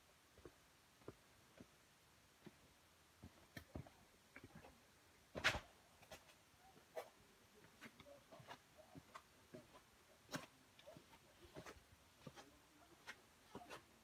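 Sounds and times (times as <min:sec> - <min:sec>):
footsteps on stone and gravel: 0:06.0 - 0:14.0.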